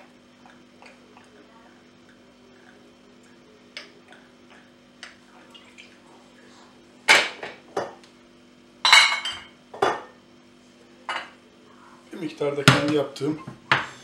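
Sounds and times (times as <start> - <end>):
kitchenware clinking and knocking: 8.9 - 10.1.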